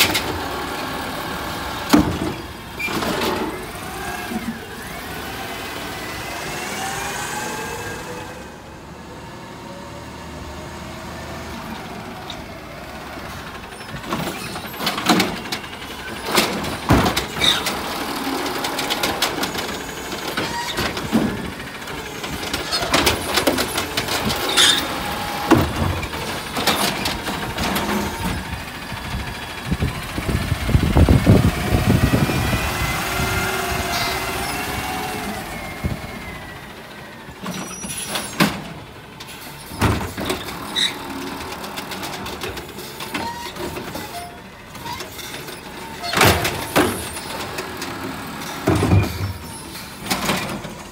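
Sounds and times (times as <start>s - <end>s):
garbage truck engine revving: 0.0s - 50.9s
bangs and clatters of cart: 1.8s - 4.9s, 13.5s - 28.7s, 37.4s - 50.9s
hydraulic whine: 19.1s - 38.6s.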